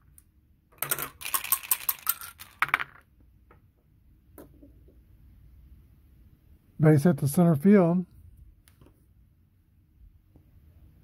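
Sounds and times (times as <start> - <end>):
dice rattling and rolling: 0.8 - 3.1.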